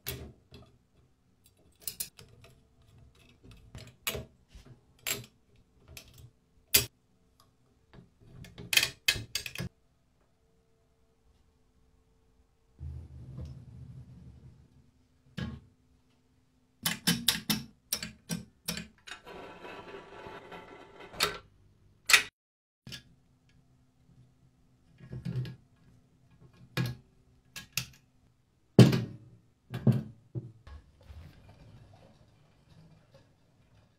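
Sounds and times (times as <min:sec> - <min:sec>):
metal scooter parts clicking: 0:01.4 - 0:03.9.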